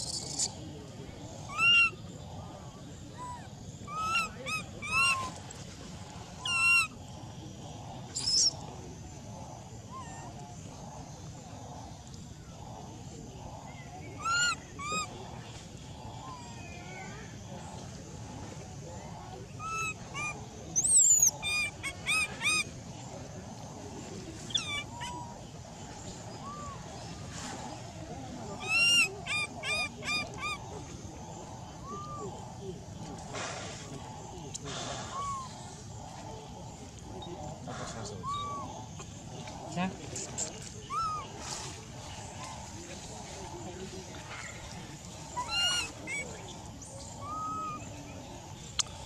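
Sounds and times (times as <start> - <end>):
baby monkey crying: 1.5 - 1.9, 3.9 - 5.3, 6.4 - 6.9, 14.2 - 15.1, 19.6 - 22.6, 24.5 - 25.2, 28.6 - 30.7, 31.9 - 32.3, 35.1 - 35.6, 38.2 - 38.7, 40.9 - 41.3, 45.4 - 46.3, 47.2 - 47.8.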